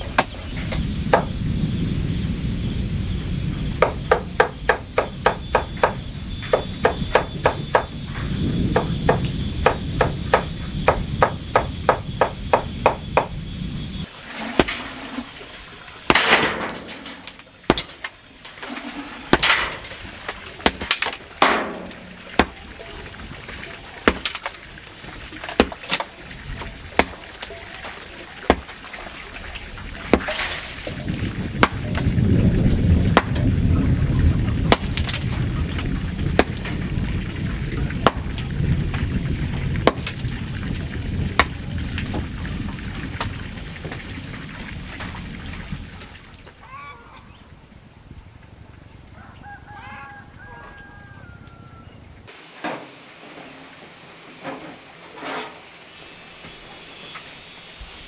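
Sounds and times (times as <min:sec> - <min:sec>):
sledgehammer striking boulder: 0:14.5 - 0:14.9, 0:17.7 - 0:18.1, 0:19.3 - 0:19.9, 0:20.6 - 0:22.6, 0:24.0 - 0:24.6, 0:25.6 - 0:26.1, 0:27.0 - 0:27.3, 0:28.5 - 0:28.8, 0:30.1 - 0:30.6, 0:31.6 - 0:32.0, 0:33.1 - 0:33.4, 0:34.7 - 0:35.3, 0:36.4 - 0:36.8, 0:38.0 - 0:38.4, 0:39.8 - 0:40.2, 0:41.4 - 0:41.6.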